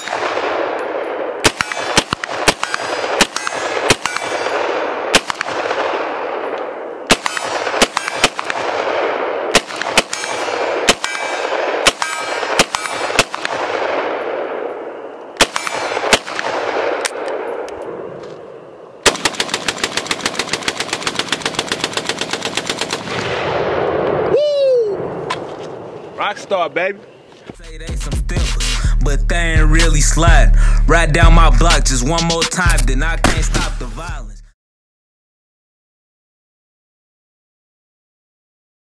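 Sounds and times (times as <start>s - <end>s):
rifle shots with rolling echo: 0.0s - 24.3s
rapid pistol fire: 1.4s - 6.4s, 7.1s - 14.5s, 15.4s - 17.0s, 19.0s - 23.9s.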